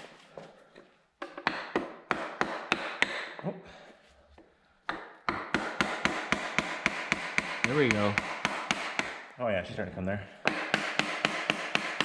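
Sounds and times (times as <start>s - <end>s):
hammer knocking on wood: 1.2s - 3.4s, 4.9s - 9.2s, 10.4s - 12.0s.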